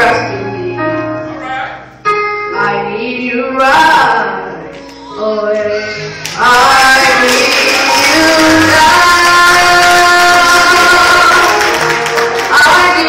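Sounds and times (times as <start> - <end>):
boy singing into a microphone: 5.0 - 11.6.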